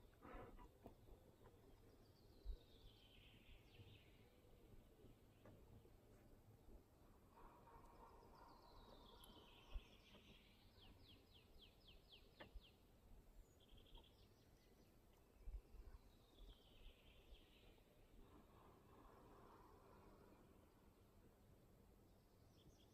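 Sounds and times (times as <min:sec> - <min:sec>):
songbird singing: 0:00.7 - 0:06.1, 0:07.3 - 0:21.0, 0:21.9 - 0:22.9.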